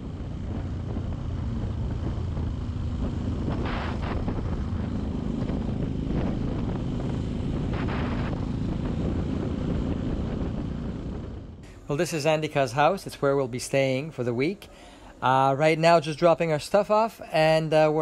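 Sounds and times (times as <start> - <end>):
motorcycle engine running: 0.0 - 11.7
wind rush on microphone: 0.0 - 11.7.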